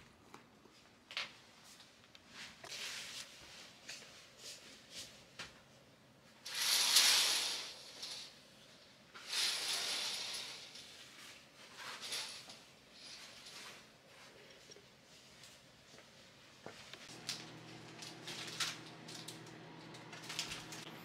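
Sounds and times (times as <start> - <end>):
curtains swishing along rail: 6.4 - 8.4, 9.2 - 14.0.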